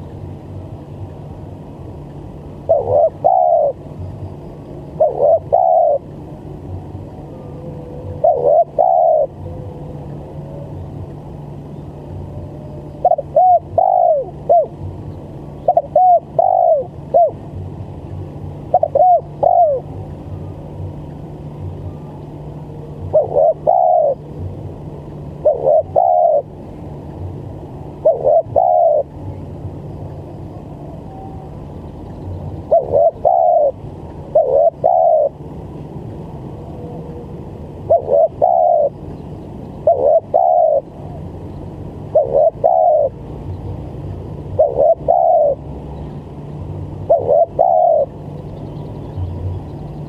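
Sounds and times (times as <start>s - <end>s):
dove cooing: 2.6s - 3.8s, 4.9s - 6.2s, 7.2s - 11.0s, 12.1s - 14.9s, 15.6s - 17.4s, 18.7s - 20.6s, 21.8s - 24.6s, 25.4s - 26.6s, 28.0s - 29.4s, 32.6s - 35.4s, 36.6s - 39.1s, 39.8s - 41.2s, 42.1s - 43.2s, 44.5s - 45.6s, 47.0s - 48.2s.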